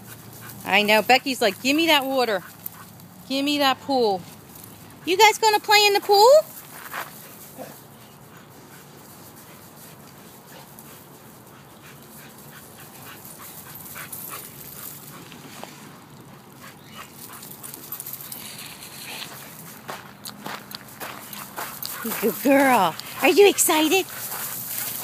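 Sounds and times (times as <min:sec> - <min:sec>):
faint dog noises: 0:06.9 - 0:15.4
dog scuffing and clicking: 0:16.9 - 0:25.0.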